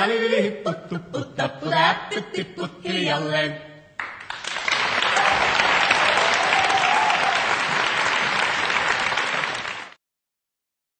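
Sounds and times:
audience applause: 4.0 - 10.0.

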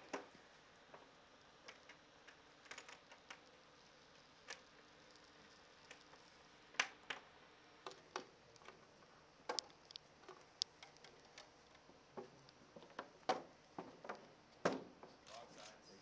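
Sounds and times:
antenna petals clicking and knocking: 0.9 - 15.2.

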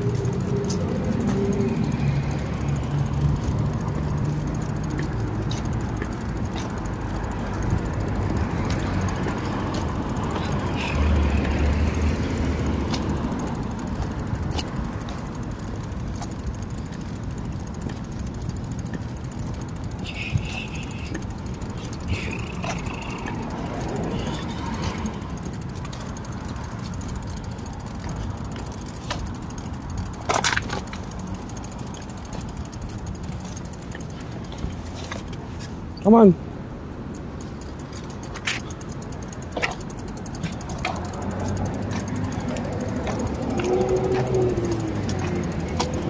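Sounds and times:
bicycle tyres rumbling on concrete: 0.0 - 36.3, 37.2 - 46.0
bike rattling and clicking: 0.0 - 46.0
short high squeaks: 19.9 - 23.5.

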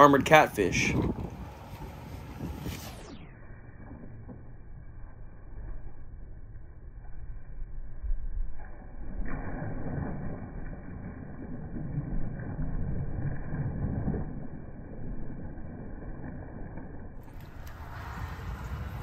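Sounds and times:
wind buffeting microphone: 0.0 - 3.1, 17.2 - 19.0.

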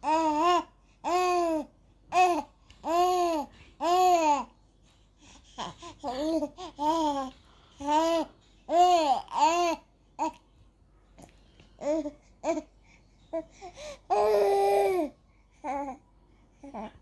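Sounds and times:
baby cooing and babbling: 0.0 - 4.6, 5.5 - 10.5, 11.8 - 12.7, 13.3 - 16.0.

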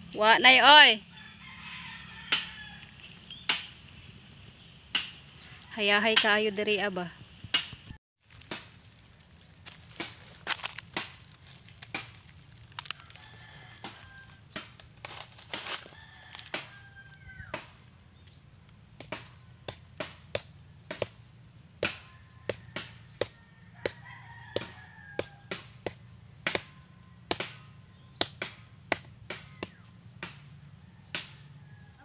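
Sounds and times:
knife chopping palm fruits: 9.6 - 18.3, 19.0 - 21.2, 21.8 - 31.5.

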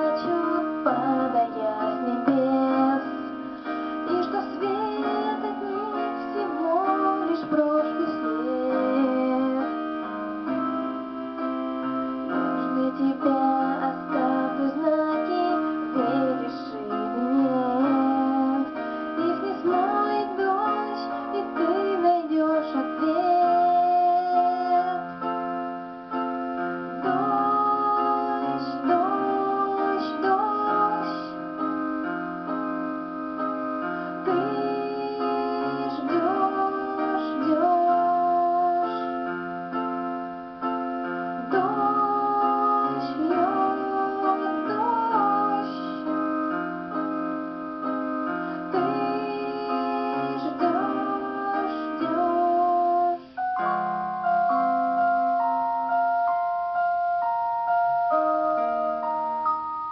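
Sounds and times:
woman singing: 0.0 - 10.2, 12.4 - 25.1, 27.0 - 31.4, 34.1 - 39.3, 41.4 - 46.2, 48.6 - 53.7
piano and keyboard accompaniment: 0.0 - 59.9.

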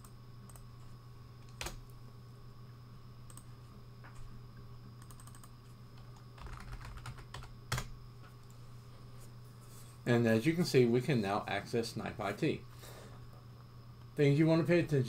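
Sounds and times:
low steady hum: 0.0 - 15.0
computer keyboard typing: 5.0 - 5.5, 6.1 - 7.9.

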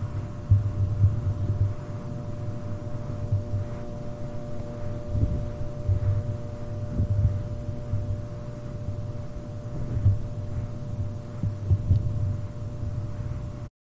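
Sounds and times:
fluorescent lights humming: 0.0 - 13.7.

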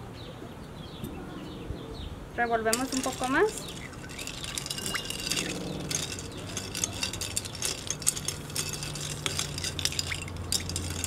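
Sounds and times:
ice clinking against glass: 2.7 - 11.0.

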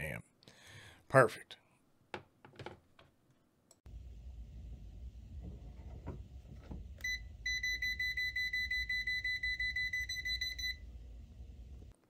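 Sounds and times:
multimeter voltage alarm beeps: 7.0 - 10.8.

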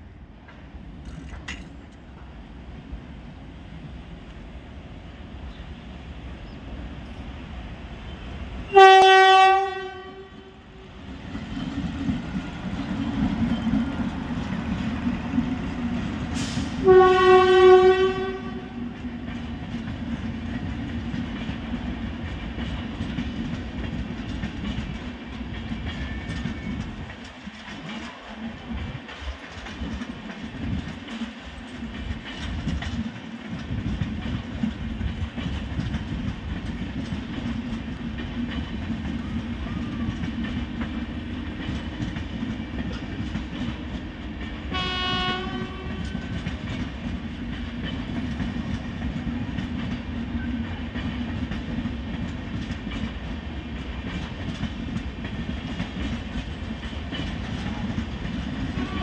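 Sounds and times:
train rumbling over rails: 0.0 - 59.0
train horn blasts: 8.7 - 10.9, 16.4 - 19.0, 44.7 - 46.4, 58.7 - 59.0.

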